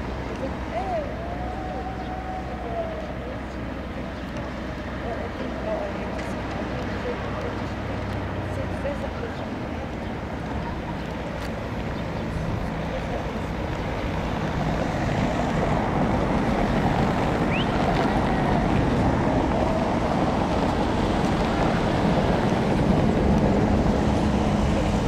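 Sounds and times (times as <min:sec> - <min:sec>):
low engine drone: 0:00.0 - 0:25.0
wind noise: 0:09.3 - 0:25.0.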